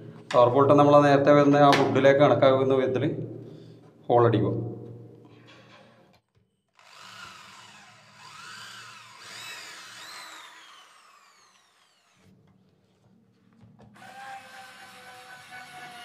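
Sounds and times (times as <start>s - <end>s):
electric drill whine: 6.7s - 12.3s, 14.0s - 16.0s.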